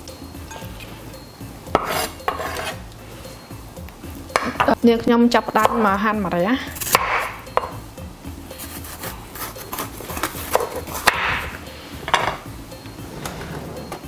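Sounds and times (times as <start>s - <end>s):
knife slicing through gourd: 1.8s - 2.8s, 6.8s - 7.3s, 8.6s - 11.5s.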